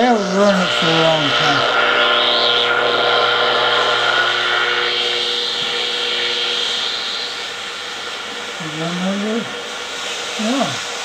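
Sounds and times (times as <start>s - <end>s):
radio static: 0.0s - 7.3s
wavering tone: 0.0s - 9.6s
steady radio tones: 0.0s - 10.8s.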